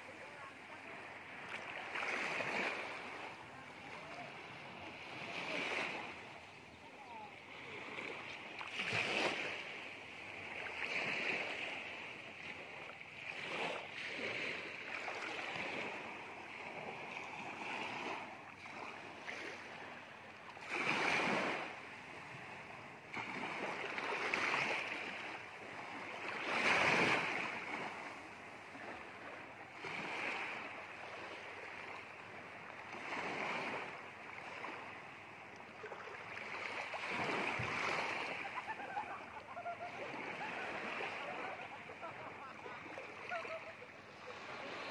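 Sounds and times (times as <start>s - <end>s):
small waves washing onto beach: 0.0s - 44.9s.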